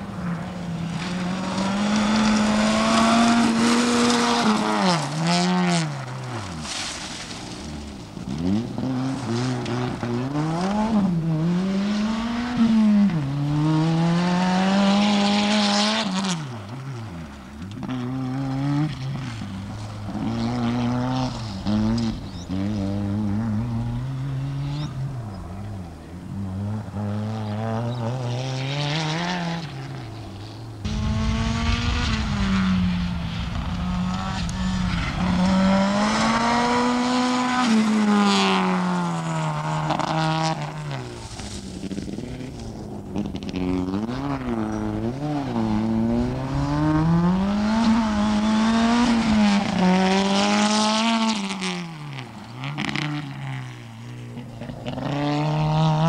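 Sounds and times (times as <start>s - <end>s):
rally car engines revving: 0.0s - 56.0s
gravel thrown by tyres: 0.8s - 10.1s.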